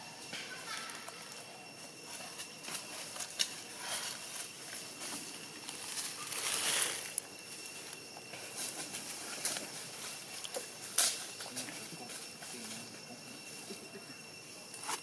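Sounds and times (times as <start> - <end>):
dry leaves rustling and crackling: 2.0 - 12.9.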